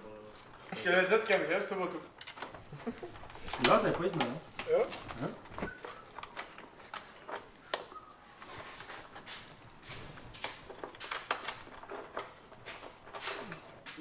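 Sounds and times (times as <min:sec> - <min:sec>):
objects clicking and knocking: 0:02.1 - 0:14.0.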